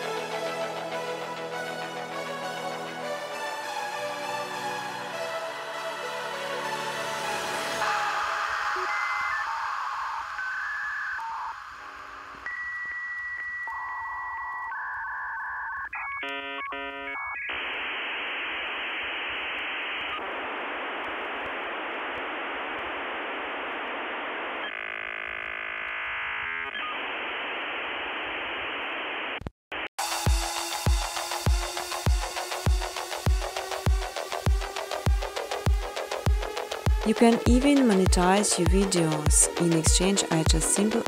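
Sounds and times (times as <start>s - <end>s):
beat music: 0.0s - 13.1s, 30.0s - 41.0s
dial-up modem tones and hiss: 7.4s - 41.0s.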